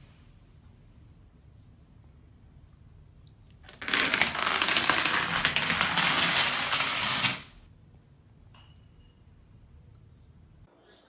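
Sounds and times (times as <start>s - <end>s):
small hard objects rattling: 3.7s - 7.5s.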